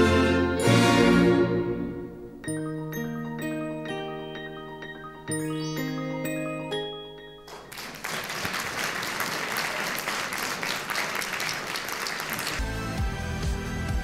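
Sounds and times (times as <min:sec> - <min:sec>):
audience applauding: 0:07.5 - 0:12.6.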